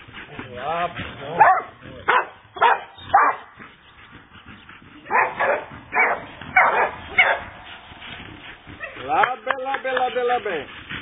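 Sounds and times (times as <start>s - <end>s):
dog barking: 1.4s - 3.5s, 5.1s - 7.6s.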